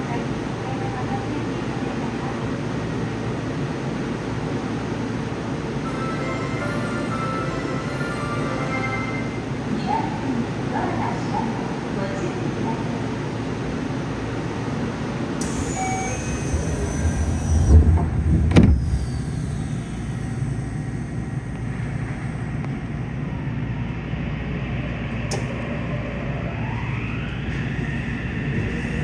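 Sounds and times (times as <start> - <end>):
subway train hum: 0.0 - 29.0
rising inverter whine: 15.4 - 29.0
train doors thumping shut: 16.5 - 19.0.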